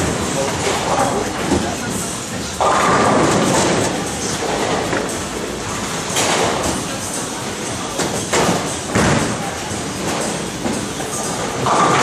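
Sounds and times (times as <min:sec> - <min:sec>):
bowling balls rumbling on lanes: 0:00.0 - 0:12.0.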